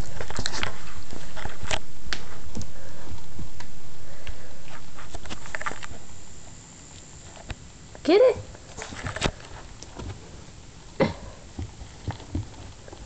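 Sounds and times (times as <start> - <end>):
puppy paws tapping and scuffling: 0.0 - 3.7, 11.5 - 13.0.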